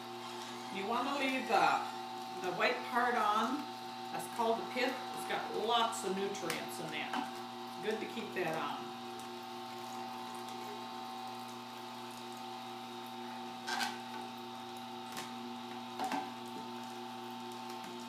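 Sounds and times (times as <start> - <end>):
juicer motor humming: 0.0 - 18.0.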